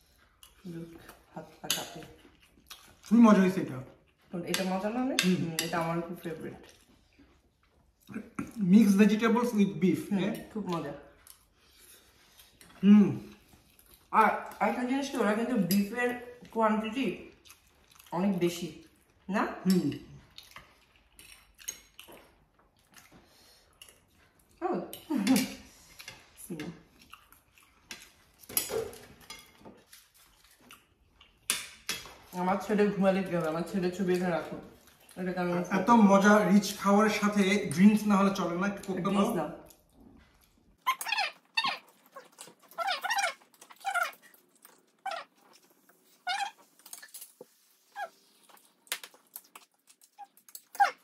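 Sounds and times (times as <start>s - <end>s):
chopsticks and forks clinking on plates: 27.9s - 30.0s.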